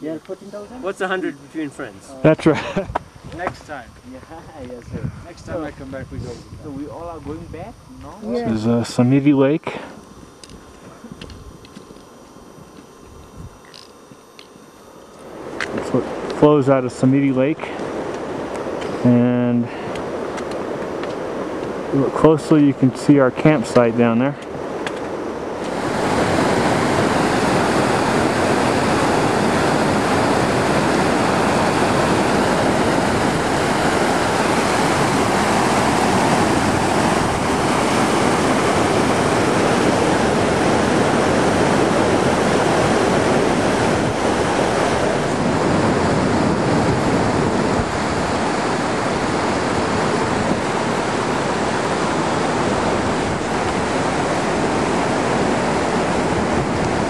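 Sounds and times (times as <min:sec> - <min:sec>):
mountain stream rushing over rocks: 0:25.6 - 0:57.0.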